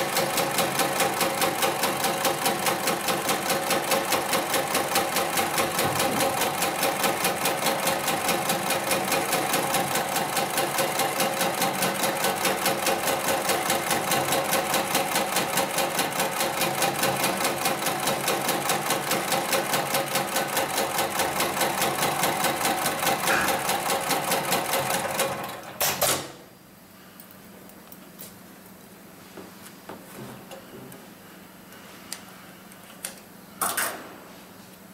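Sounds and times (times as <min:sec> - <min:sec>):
sewing machine stitching: 0:00.0 - 0:26.2.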